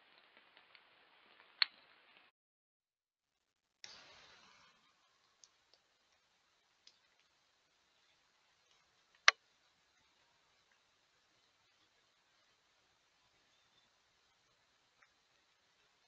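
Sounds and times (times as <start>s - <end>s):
small ticks: 3.8s - 12.6s, 13.2s - 16.0s
faint microphone hiss: 3.8s - 16.0s.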